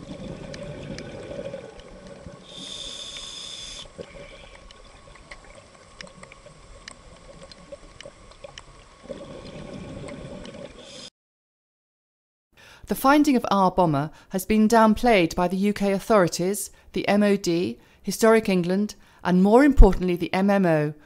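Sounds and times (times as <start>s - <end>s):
exhaled bubbles rumbling: 0.0s - 2.7s, 3.9s - 11.0s
regulator inhalation hiss: 2.4s - 4.6s, 10.8s - 11.1s
faint clicks: 3.0s - 9.0s.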